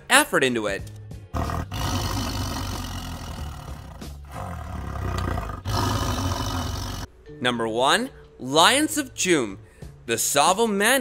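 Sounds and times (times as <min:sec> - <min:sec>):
tiger roaring: 0:01.3 - 0:07.1.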